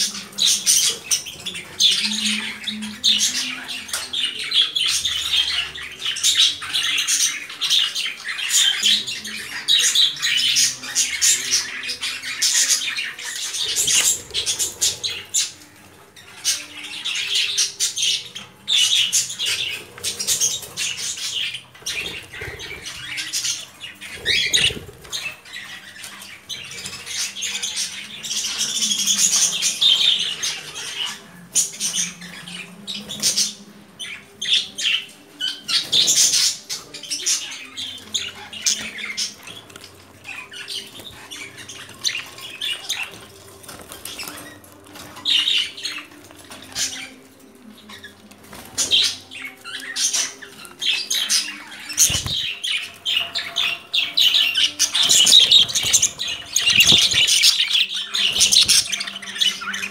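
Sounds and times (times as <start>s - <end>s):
pet birds chirping and squawking: 0.0s - 59.9s.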